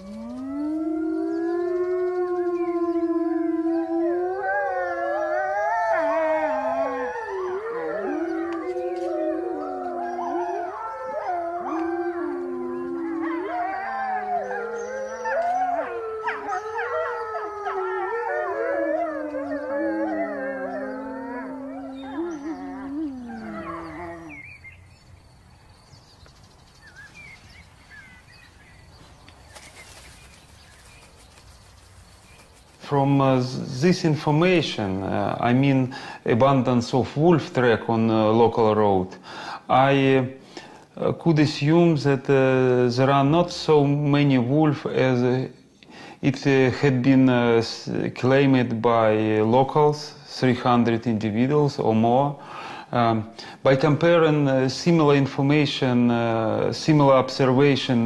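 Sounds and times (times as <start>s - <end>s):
wolves howling in chorus: 0.0s - 24.6s.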